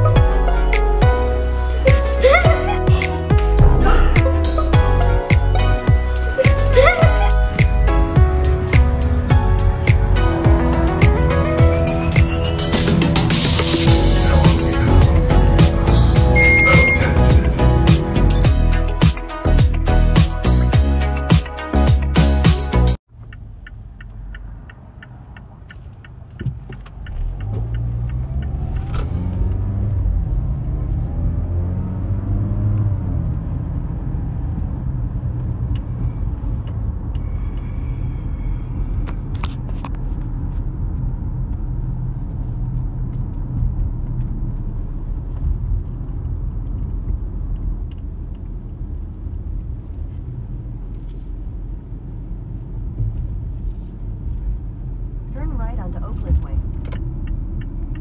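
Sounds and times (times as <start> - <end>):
car cabin rumble: 0.0 - 18.5, 34.7 - 58.0.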